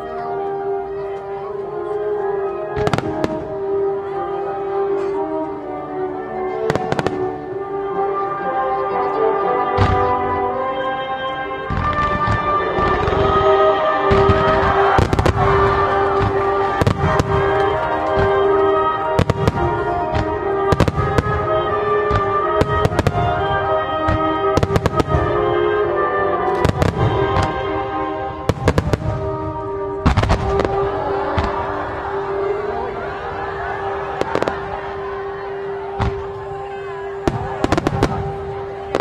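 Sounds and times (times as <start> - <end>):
music with long held notes: 0.0 - 39.0
fireworks bursting with sharp bangs: 2.8 - 4.1, 6.7 - 7.4, 9.8 - 10.3, 11.7 - 32.4, 33.4 - 39.0.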